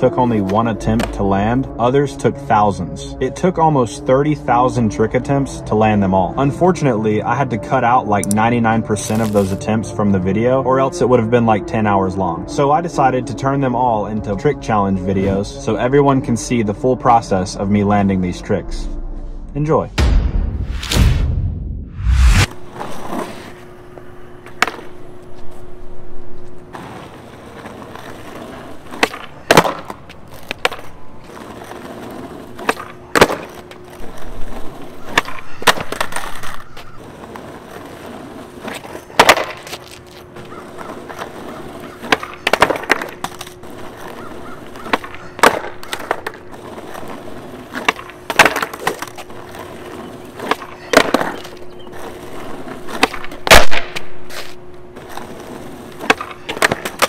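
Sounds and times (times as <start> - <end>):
skateboard slapping asphalt: 0.0 - 1.4, 7.8 - 9.8, 22.4 - 25.4, 26.6 - 57.0
skateboard popping: 0.3 - 1.2, 22.6 - 25.3, 26.6 - 57.0.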